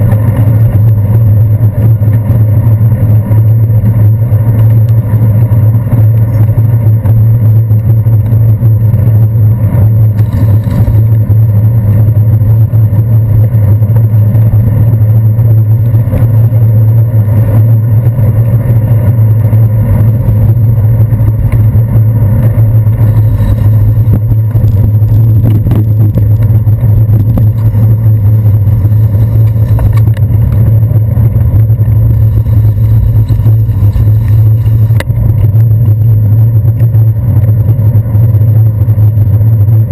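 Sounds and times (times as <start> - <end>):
motor traffic: 0.0 - 39.9
road rumble: 0.0 - 39.9.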